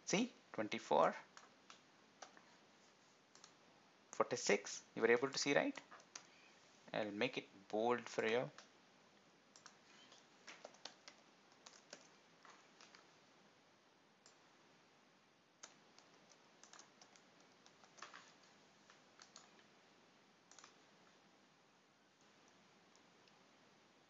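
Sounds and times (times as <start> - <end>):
keyboard typing: 3.3 - 3.6, 9.5 - 13.1, 15.6 - 19.7, 20.5 - 20.8.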